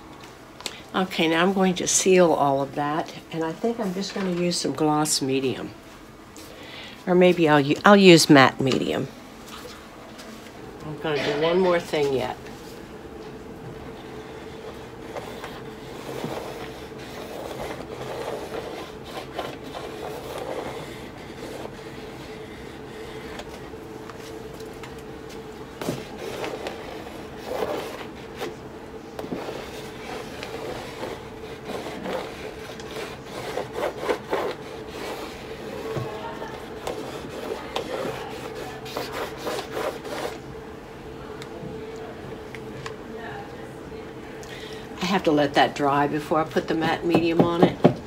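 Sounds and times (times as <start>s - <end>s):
steady low hum: 0.0s - 48.0s
marker scraping textured canvas: 14.7s - 23.5s, 25.8s - 28.6s, 29.2s - 40.4s.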